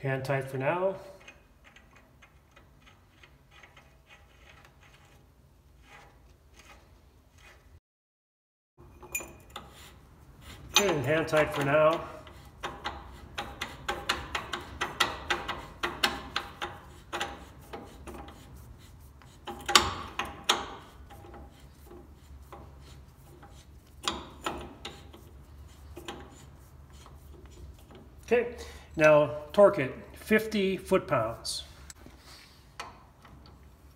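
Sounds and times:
brake drum rubbing: 9.5s - 28.4s.

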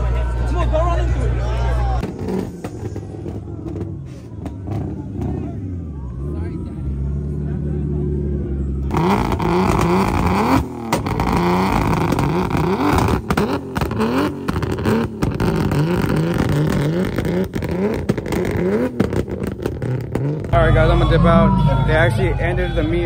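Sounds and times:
exhaust pops and bangs: 2.0s - 5.4s, 8.9s - 20.6s
engine revving in blips: 2.0s - 22.6s.

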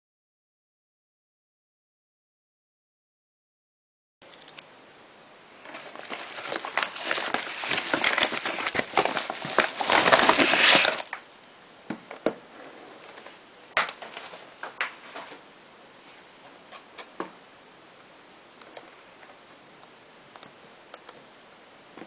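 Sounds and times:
padded envelope crinkling and tearing: 5.6s - 11.2s.

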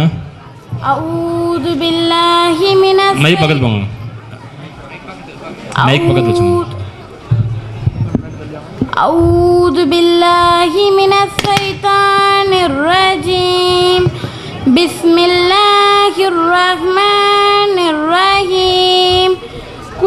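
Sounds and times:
girl reciting in melodic chant: 0.8s - 3.6s, 5.7s - 7.0s, 8.9s - 20.0s.

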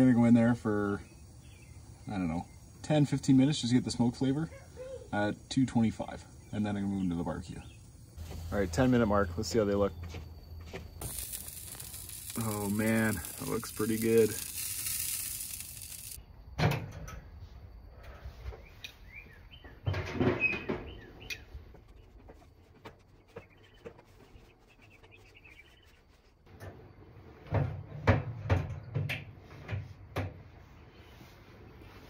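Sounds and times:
birds chirping faintly: 0.0s - 16.4s, 18.1s - 26.4s.

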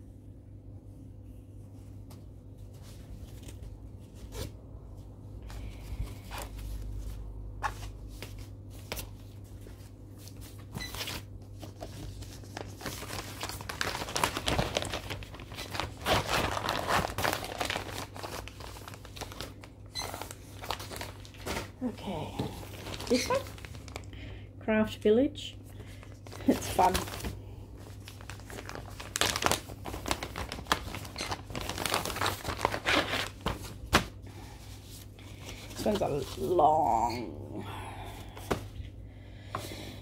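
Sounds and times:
fabric crinkling and rustling: 6.0s - 24.0s, 26.0s - 34.2s.

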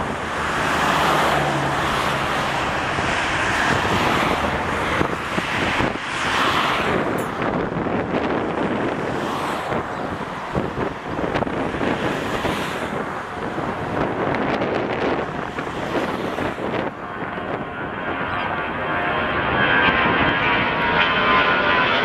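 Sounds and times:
wind buffeting microphone: 0.0s - 21.8s
jet engines roaring: 0.0s - 22.0s.

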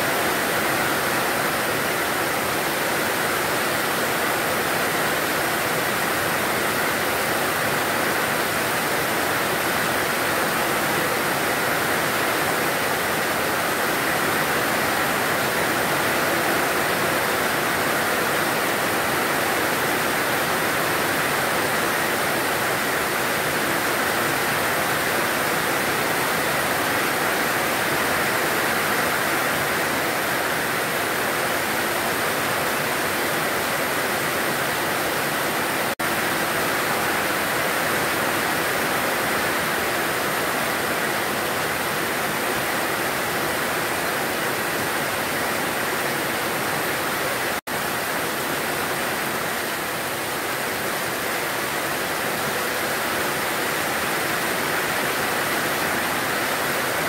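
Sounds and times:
heavy rain pouring: 0.0s - 57.0s.

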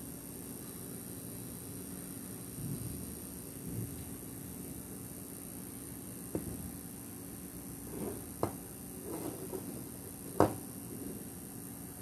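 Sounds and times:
metal cell knocking on table: 10.3s - 10.6s.

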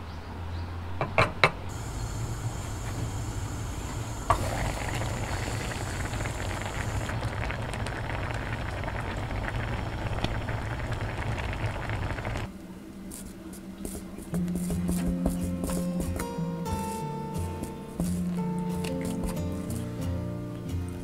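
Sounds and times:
pot bubbling and crackling: 1.7s - 12.5s, 17.6s - 20.0s.

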